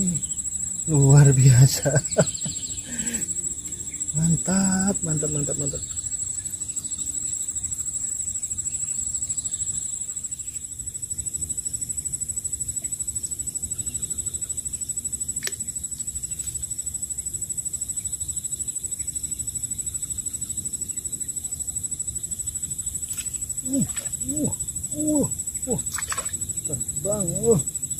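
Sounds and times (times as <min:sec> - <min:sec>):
high-pitched insect trilling: 0:00.0 - 0:27.9
sharp click: 0:15.4 - 0:15.6.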